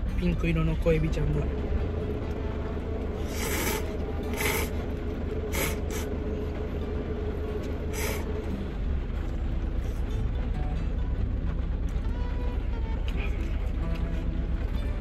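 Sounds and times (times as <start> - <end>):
steady low hum: 0.0 - 15.0
person slurping noodles: 3.2 - 4.8, 5.5 - 6.1, 7.9 - 8.3.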